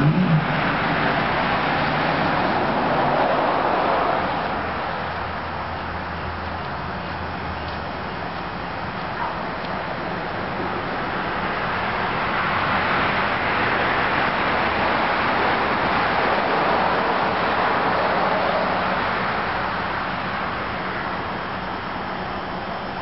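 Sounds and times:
car passing: 0:00.0 - 0:06.0
steady low hum: 0:00.0 - 0:12.3.

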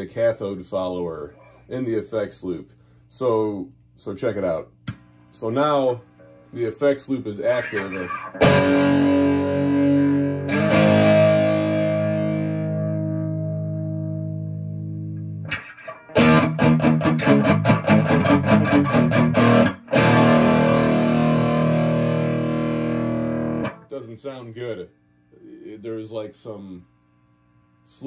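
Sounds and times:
distorted electric guitar chords: 0:07.5 - 0:23.9.

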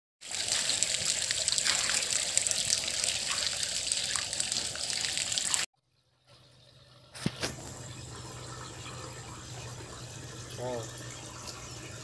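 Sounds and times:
fish splashing in shallow water: 0:00.2 - 0:05.7.

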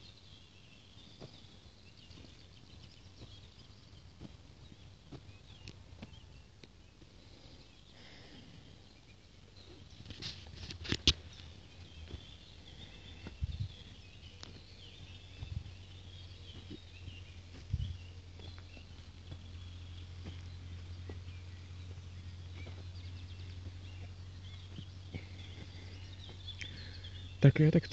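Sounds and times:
footsteps on dry soil: 0:00.0 - 0:27.8
birds chirping faintly: 0:00.0 - 0:27.9
low thuds: 0:12.0 - 0:27.0.

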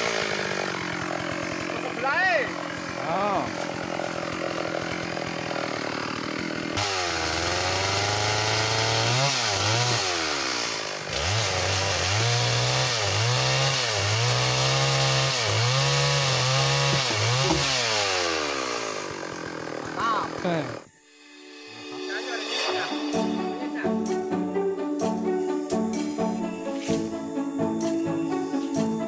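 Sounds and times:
chainsaw cutting into log: 0:00.0 - 0:20.9.

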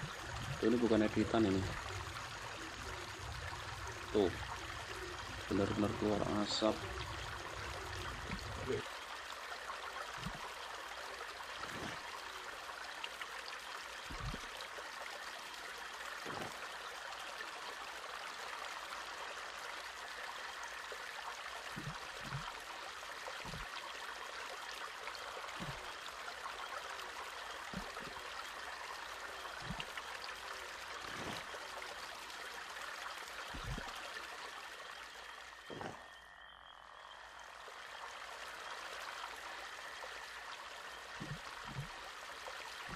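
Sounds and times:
steady outdoor hiss: 0:00.0 - 0:42.9
soft low knocks: 0:41.2 - 0:42.0.

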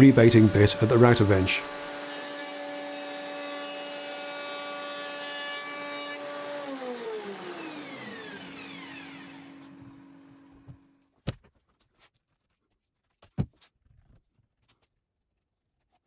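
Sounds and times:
dust extractor hum: 0:00.0 - 0:04.8, 0:06.2 - 0:10.9
router whine spinning down: 0:00.0 - 0:10.9.

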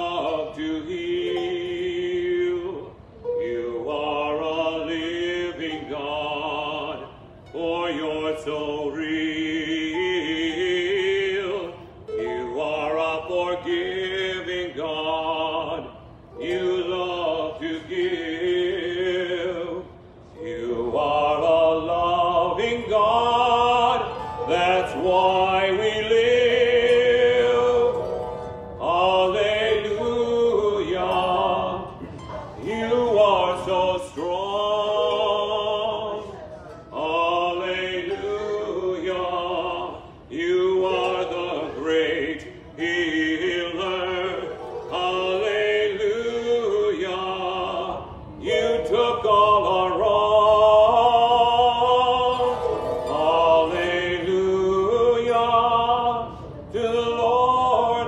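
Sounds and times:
harp playing: 0:00.0 - 0:08.3, 0:09.1 - 0:14.3, 0:20.4 - 0:46.7, 0:51.2 - 0:55.4
person singing operatically: 0:00.0 - 0:58.0.

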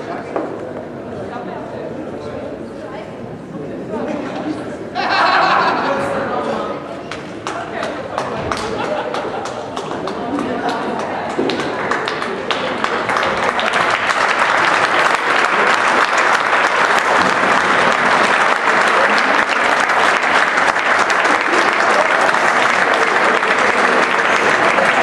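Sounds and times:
applause: 0:07.1 - 0:25.0.

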